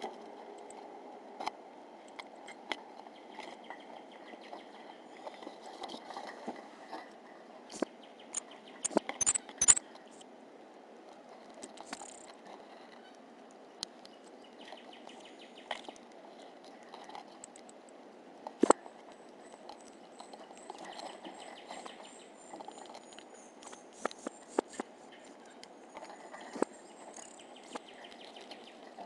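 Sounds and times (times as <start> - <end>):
faint high chirps: 8.2 - 10.2.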